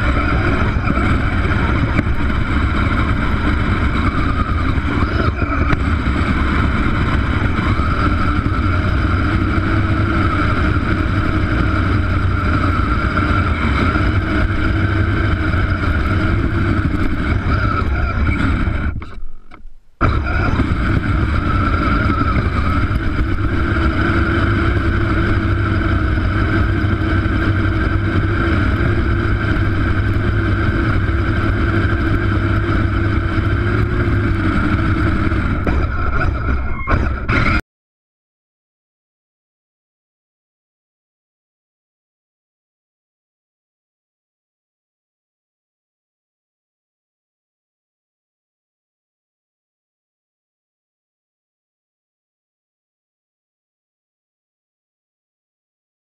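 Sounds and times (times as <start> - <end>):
snowplow engine running: 0.0 - 37.6.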